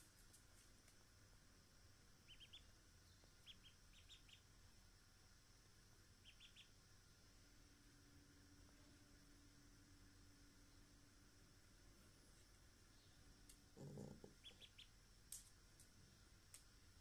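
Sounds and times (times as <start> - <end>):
duckling peeping: 2.2 - 4.5, 6.2 - 6.8, 13.8 - 15.0.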